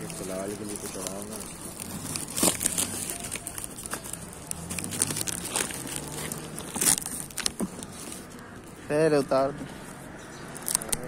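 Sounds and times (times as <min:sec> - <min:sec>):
plastic wrapping crinkling: 0:00.0 - 0:08.5
sharp crackles: 0:00.0 - 0:08.8, 0:10.4 - 0:11.0.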